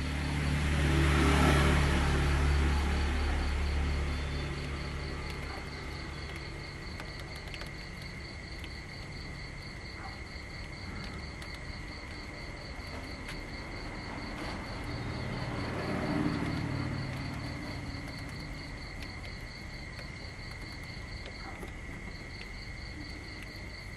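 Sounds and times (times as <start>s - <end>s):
insect pulsed chirp: 0.0s - 23.9s.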